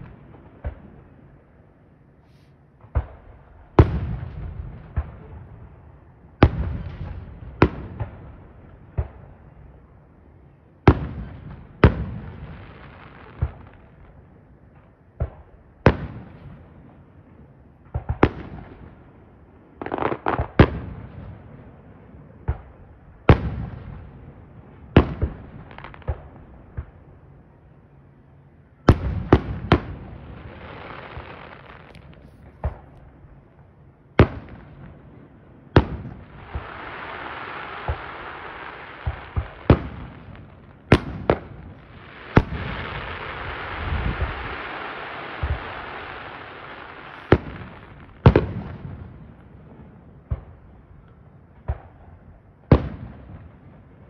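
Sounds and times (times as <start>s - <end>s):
crackling hiss of fireworks: 0.0s - 54.0s
fireworks bangs: 28.9s - 33.5s, 34.2s - 50.6s.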